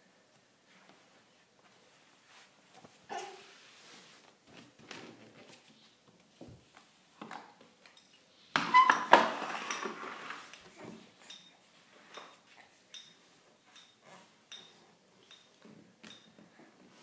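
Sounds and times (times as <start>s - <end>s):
plastic toys clattering and rattling: 8.7s - 11.4s.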